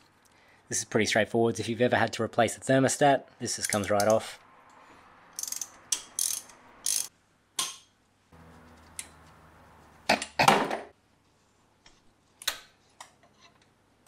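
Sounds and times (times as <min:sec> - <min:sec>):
socket ratchet clicking: 0:05.4 - 0:07.1.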